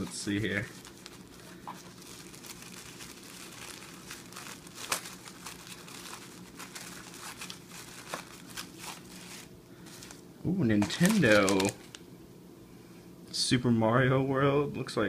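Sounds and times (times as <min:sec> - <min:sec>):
sharp paper crackles: 0:00.0 - 0:10.2, 0:10.8 - 0:12.0
tissue paper rustling: 0:00.0 - 0:10.2, 0:10.8 - 0:12.0.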